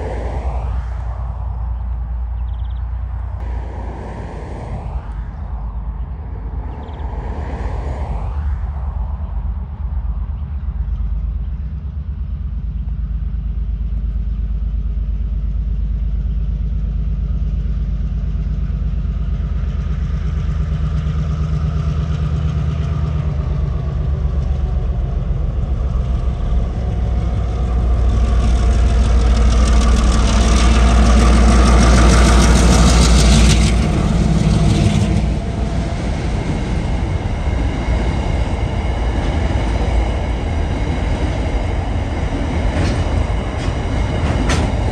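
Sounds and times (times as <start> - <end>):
diesel locomotive engine drone: 0.0 - 44.9
train wagons rolling: 18.7 - 44.9.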